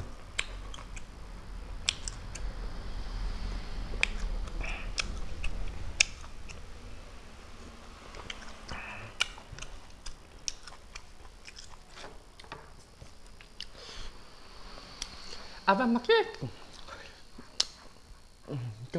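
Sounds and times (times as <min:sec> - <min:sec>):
wet lip-smacking clicks: 0:00.3 - 0:01.1, 0:01.8 - 0:02.5, 0:04.0 - 0:06.6, 0:08.2 - 0:11.8, 0:17.6 - 0:17.8.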